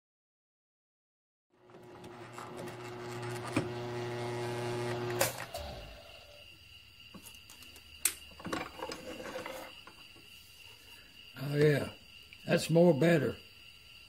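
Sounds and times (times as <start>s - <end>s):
drill motor hum: 1.6s - 6.4s.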